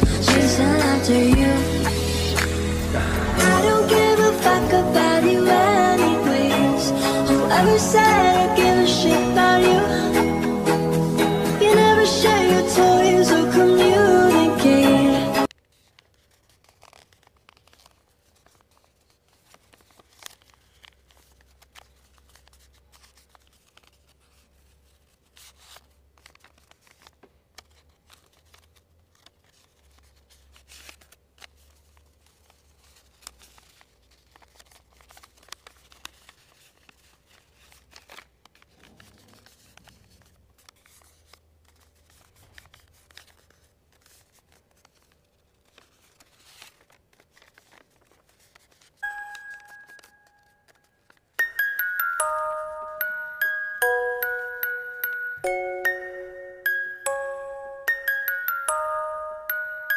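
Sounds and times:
paper crinkling and creasing: 15.4s - 57.2s, 57.8s - 59.9s.

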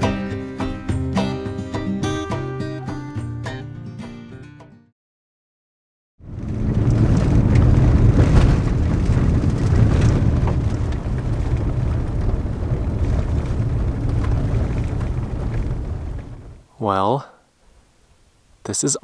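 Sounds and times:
tyres rumbling on gravel: 6.2s - 16.6s.

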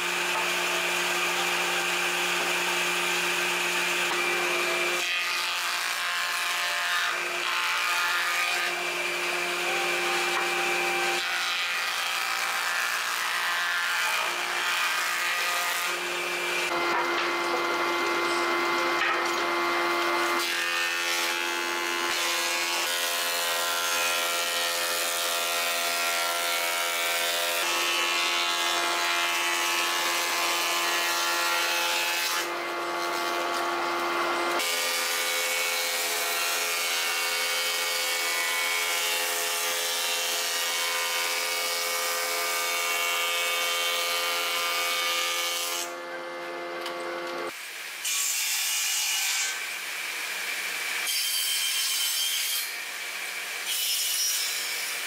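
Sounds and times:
planer cutter head shaving boards: 0.0s - 49.6s
planer motor whine: 16.1s - 20.4s.

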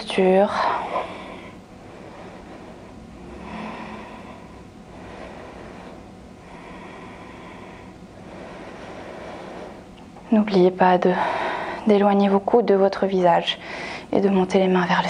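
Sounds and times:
woman breathing: 0.5s - 10.2s, 11.0s - 11.9s, 13.6s - 14.1s.

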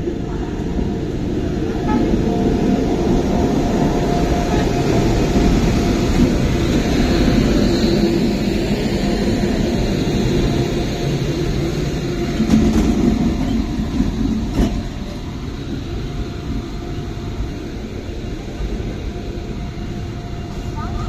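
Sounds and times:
train wheels rumbling on track: 0.0s - 21.0s.

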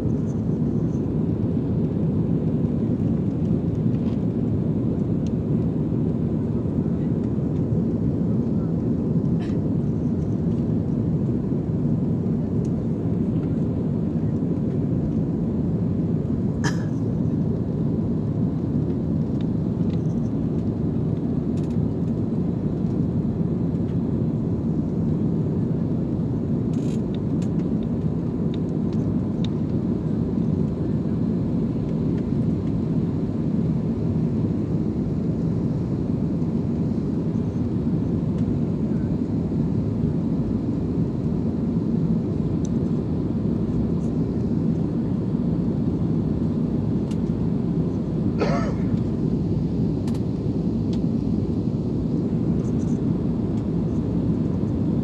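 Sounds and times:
jet engine drone in cabin: 0.0s - 55.0s.

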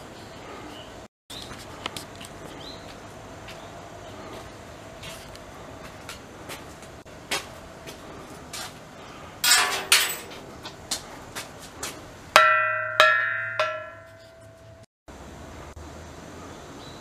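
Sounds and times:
hanging metal bell ringing: 12.4s - 14.8s.

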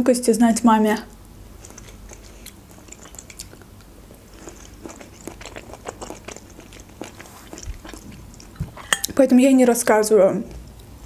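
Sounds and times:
person chewing food: 1.5s - 9.2s.

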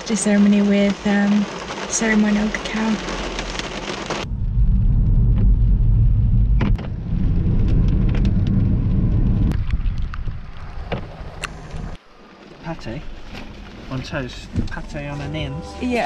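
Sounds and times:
rain hissing on a car: 0.0s - 4.6s, 6.7s - 16.0s
tyre and engine rumble: 4.1s - 16.0s.

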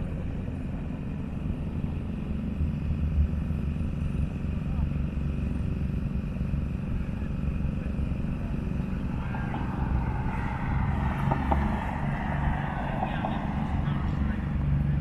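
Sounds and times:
distant car engine running: 0.0s - 15.0s
steady low rumble: 6.8s - 15.0s.

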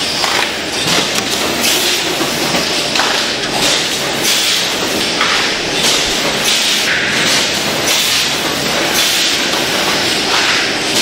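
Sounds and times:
packaging machine noise: 0.0s - 11.0s.

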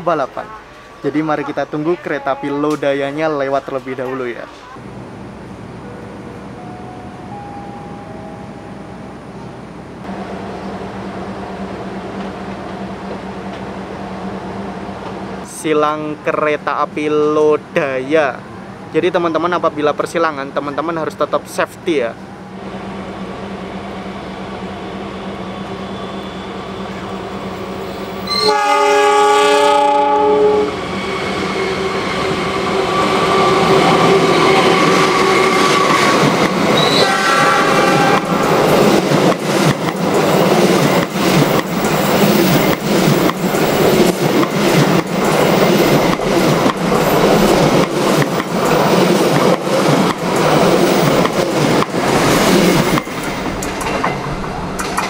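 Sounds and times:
locomotive horn blast: 28.3s - 36.2s, 36.8s - 38.7s
train wheels clacking on rails: 31.2s - 55.0s.

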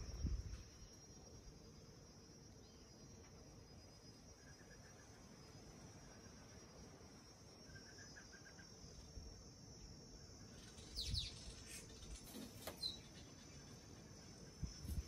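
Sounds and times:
high insect hum: 0.0s - 15.0s
bird chirps: 10.5s - 13.9s.

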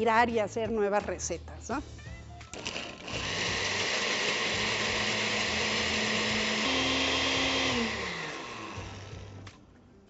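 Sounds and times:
blender running: 2.6s - 9.6s.

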